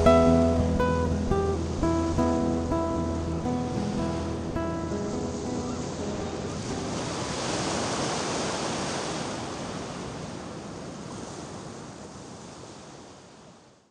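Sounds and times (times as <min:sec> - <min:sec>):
ocean waves breaking: 0:00.0 - 0:13.6.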